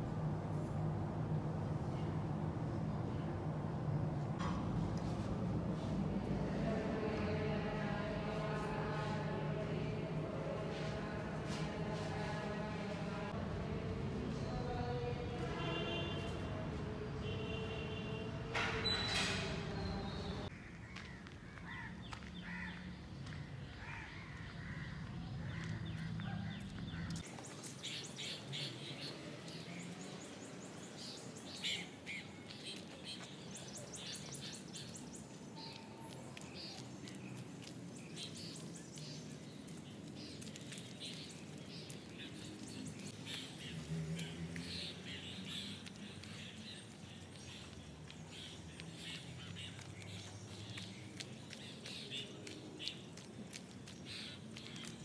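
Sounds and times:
birds chirping: 14.3 - 55.0.

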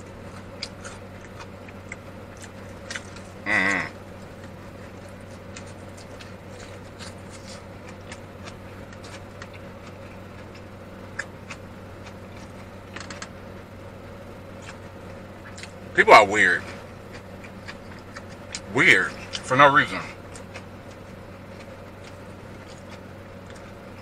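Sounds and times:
idling car hum: 0.0 - 24.0
man humming: 3.4 - 4.0.

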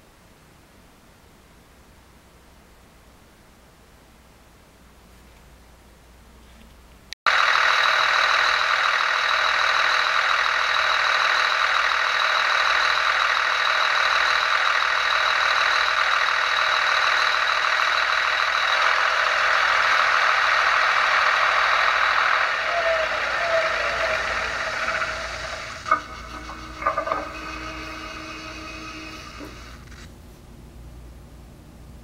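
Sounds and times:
diesel engine idling from loudspeaker: 7.3 - 29.8.

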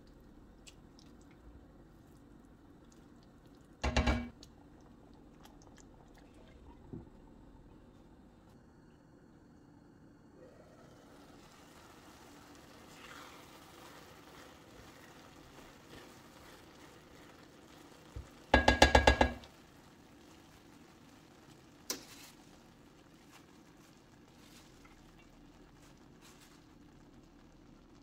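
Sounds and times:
faint sizzle: 0.0 - 28.0
knocks on ringing pan: 3.8 - 4.3, 18.6 - 19.4
spatula stirring in frying pan: 11.5 - 26.8.

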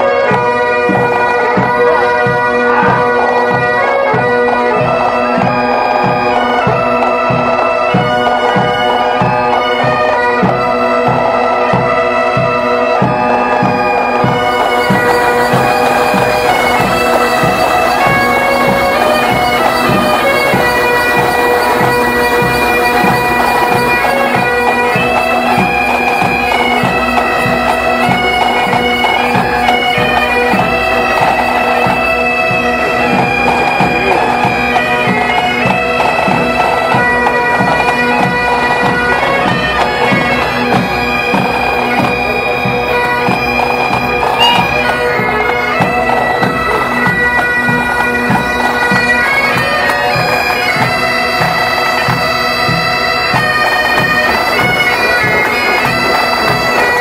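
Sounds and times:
bagpipes playing a tune: 0.0 - 57.0.

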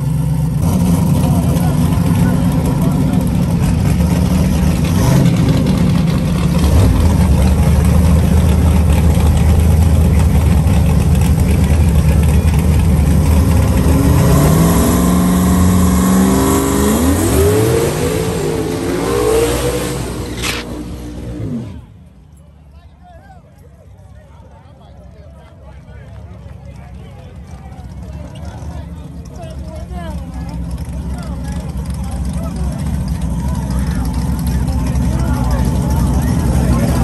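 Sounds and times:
car engine revving: 0.2 - 22.0.

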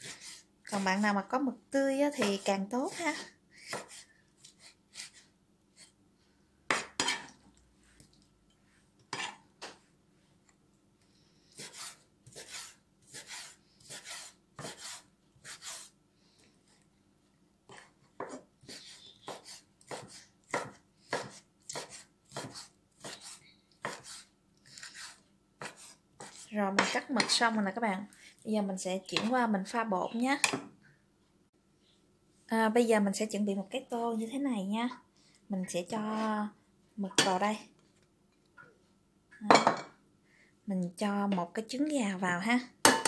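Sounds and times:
knife chopping on wooden board: 2.2 - 4.0, 6.7 - 7.3, 11.6 - 15.9, 18.2 - 24.2, 24.9 - 27.4.

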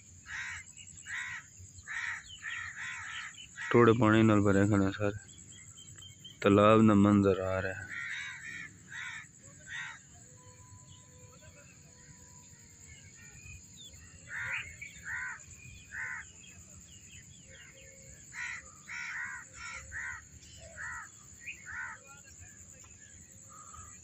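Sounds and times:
crows cawing: 0.3 - 4.5, 7.4 - 10.1, 14.2 - 16.4, 18.3 - 22.0, 23.5 - 24.0.

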